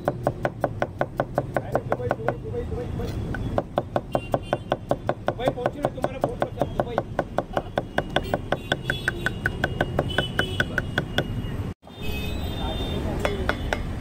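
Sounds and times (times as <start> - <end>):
knife chopping on wooden board: 0.0 - 2.4, 3.2 - 11.4.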